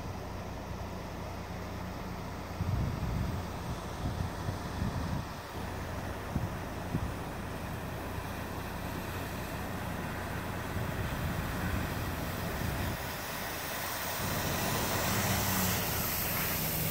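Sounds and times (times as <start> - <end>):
truck engine running: 0.0 - 16.9
water rushing and splashing: 8.2 - 16.9.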